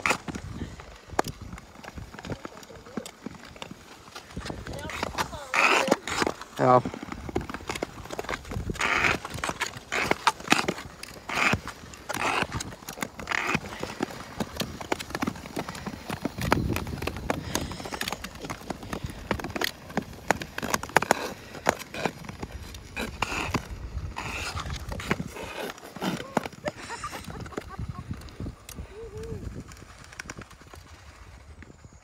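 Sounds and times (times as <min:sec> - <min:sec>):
poles clicking on ice: 0:00.0 - 0:28.8
skates scraping on ice: 0:00.0 - 0:32.0.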